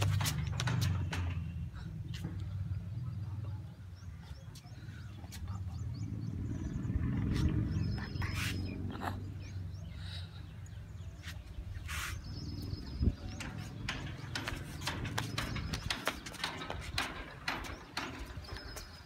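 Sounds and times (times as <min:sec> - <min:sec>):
flip-flops slapping on concrete: 0:00.0 - 0:01.1.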